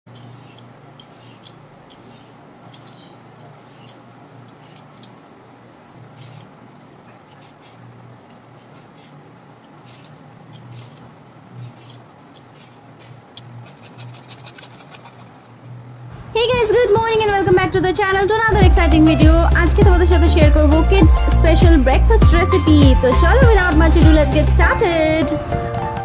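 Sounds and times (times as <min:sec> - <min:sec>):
vegetable peeler scraping: 0:00.1 - 0:05.4, 0:06.1 - 0:06.6, 0:07.2 - 0:15.6
steady low hum: 0:00.1 - 0:25.2.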